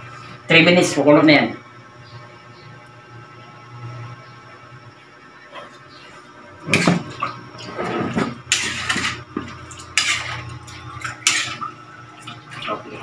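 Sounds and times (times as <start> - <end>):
metal ladle scraping a wok: 8.5 - 9.2, 10.0 - 10.4, 11.2 - 11.6.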